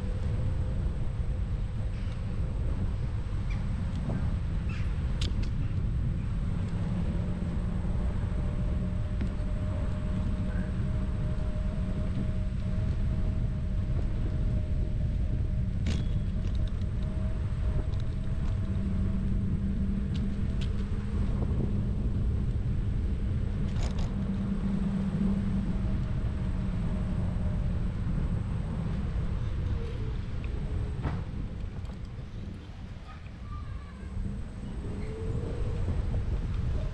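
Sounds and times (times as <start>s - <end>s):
vehicle engine rumble: 0.0s - 36.9s.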